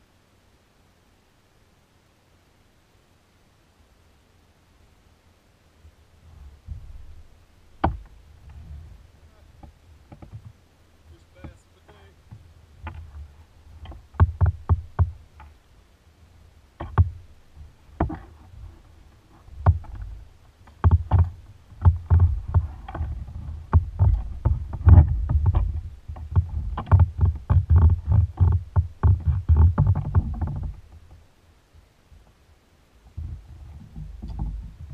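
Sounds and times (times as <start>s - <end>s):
knocks and thumps on plastic kayak: 6.3s - 10.6s, 12.2s - 15.6s, 16.8s - 31.3s, 33.0s - 34.9s.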